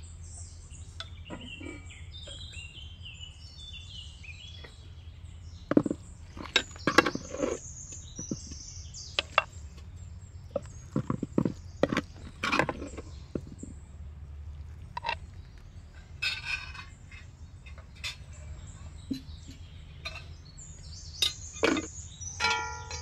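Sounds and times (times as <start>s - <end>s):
birds singing: 0.0s - 23.0s
metal ladle scraping and clinking pan: 5.7s - 7.6s, 16.2s - 18.2s, 21.2s - 23.0s.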